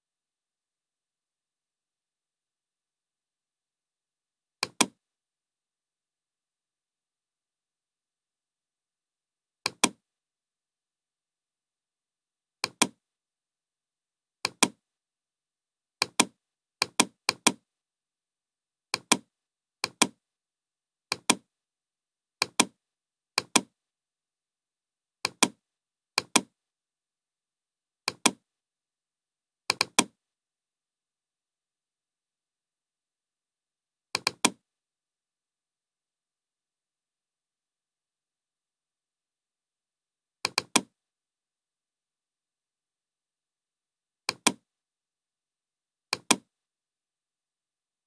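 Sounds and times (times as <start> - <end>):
computer mouse button clicking: 4.6 - 5.0, 9.7 - 10.0, 12.6 - 13.0, 14.5 - 14.8, 16.0 - 17.6, 19.0 - 20.2, 21.1 - 21.4, 22.4 - 22.8, 23.4 - 23.7, 25.2 - 25.6, 26.2 - 26.5, 28.1 - 28.4, 29.7 - 30.1, 34.2 - 34.6, 40.4 - 40.9, 44.3 - 44.6, 46.1 - 46.5.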